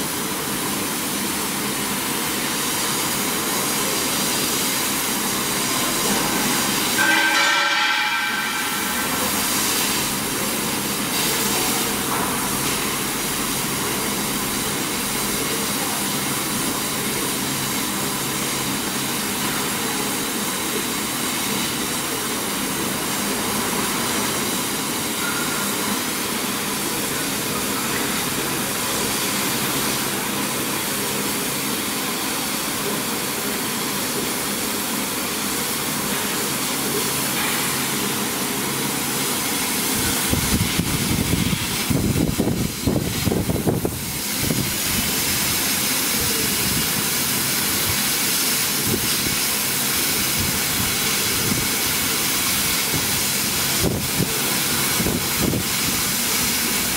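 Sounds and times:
laser cutter rushing noise: 1.4s - 33.6s.

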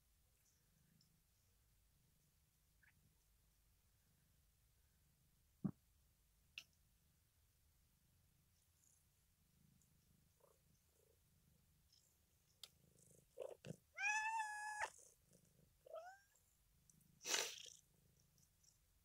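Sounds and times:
cat meowing: 14.0s - 14.9s, 15.9s - 16.3s
cat hissing: 17.2s - 17.8s.

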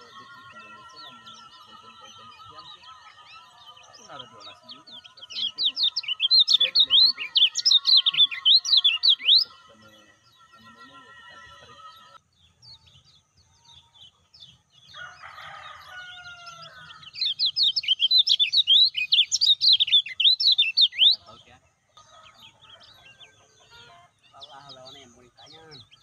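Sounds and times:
bird twittering: 0.0s - 13.0s, 14.9s - 21.6s
soft high bird chirps: 0.0s - 26.0s.

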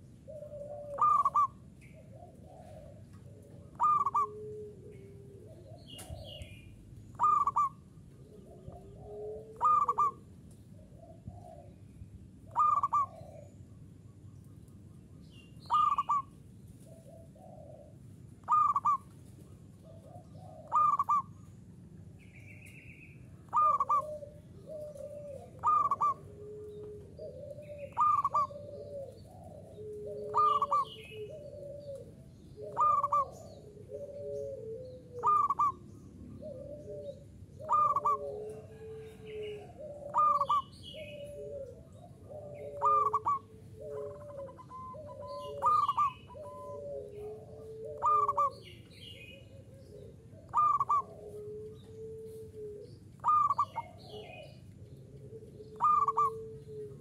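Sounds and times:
dove cooing loudly: 0.0s - 11.7s, 12.4s - 13.6s, 15.6s - 16.3s, 16.9s - 21.4s, 23.4s - 57.0s
soft low cooing: 7.2s - 10.2s, 23.5s - 35.8s, 36.4s - 57.0s.

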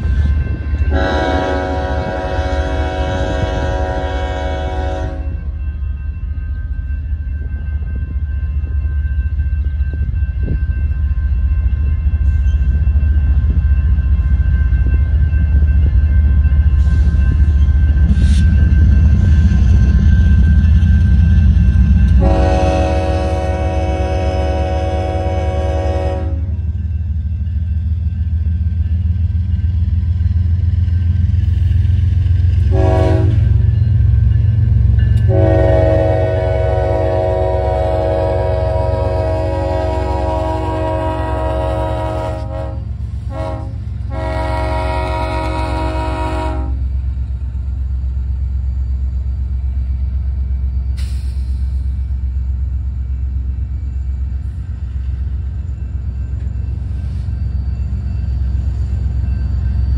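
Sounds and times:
railroad crossing bell ringing: 0.0s - 59.9s
train rumbling: 0.0s - 59.9s
locomotive horn blasts: 0.9s - 5.4s, 22.2s - 26.6s, 32.6s - 33.6s, 35.2s - 46.9s.

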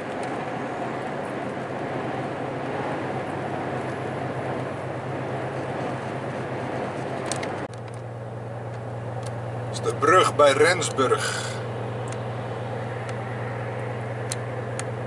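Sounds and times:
low engine drone: 0.0s - 15.0s
tyres hissing on wet road: 11.0s - 11.7s.

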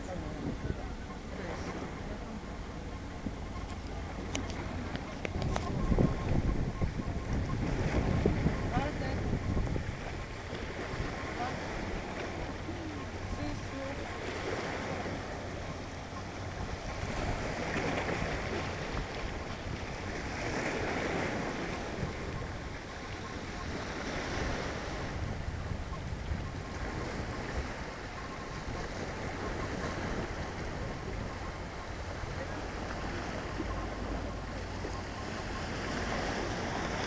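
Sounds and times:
waves washing against rocks: 0.0s - 25.8s
wind on microphone: 0.0s - 37.0s.

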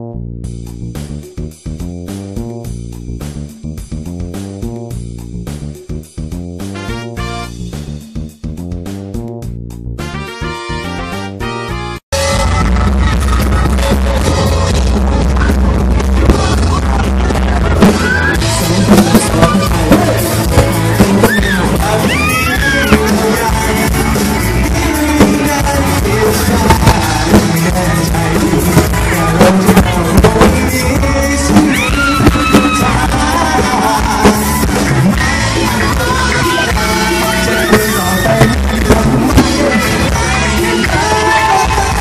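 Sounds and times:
live rock band playing: 0.5s - 42.0s
men singing into microphones: 18.4s - 42.0s.

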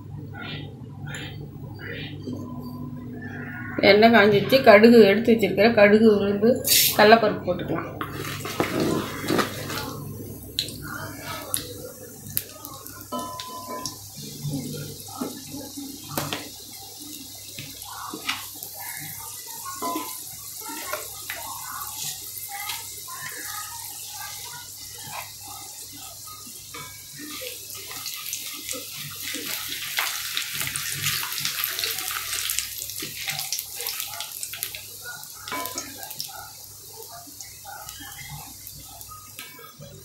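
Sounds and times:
seeds sizzling in hot oil: 6.6s - 7.0s, 10.6s - 39.8s.

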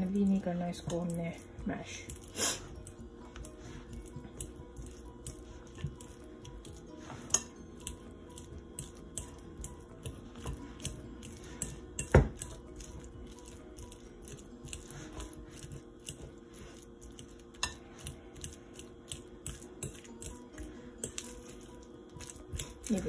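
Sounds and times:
fork scraping glass bowl: 2.1s - 9.4s, 10.0s - 13.6s.

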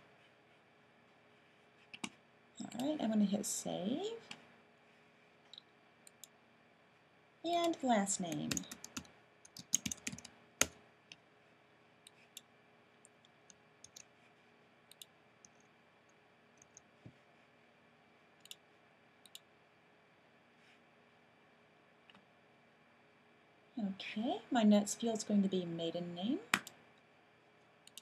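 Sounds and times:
typing on computer keyboard: 7.6s - 10.8s, 13.8s - 14.1s
mouse clicks: 14.9s - 15.7s.

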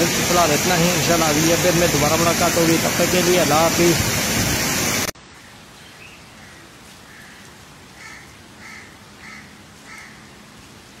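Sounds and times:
crow cawing: 6.4s - 10.3s.

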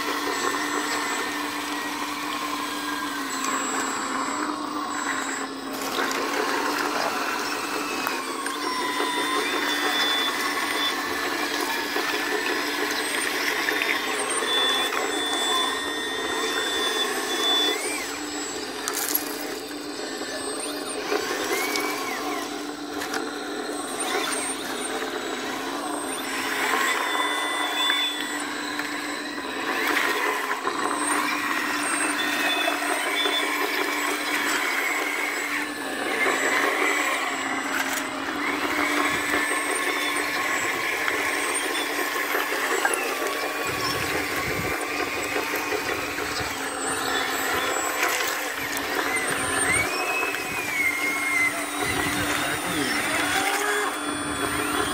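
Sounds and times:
hydraulic pump and electric motor whine: 0.0s - 54.9s
toy dozer working: 0.0s - 54.9s
stones clicking: 18.9s - 19.4s.

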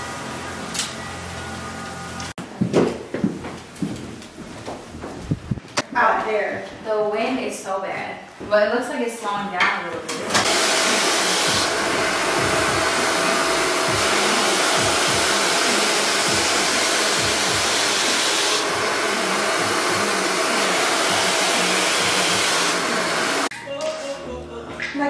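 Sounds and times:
hair dryer running: 10.2s - 23.5s.

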